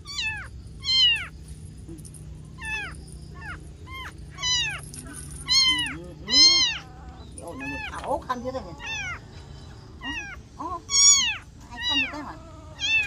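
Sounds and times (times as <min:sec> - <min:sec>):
kitten mewing: 0:02.6 - 0:08.0, 0:10.0 - 0:13.0.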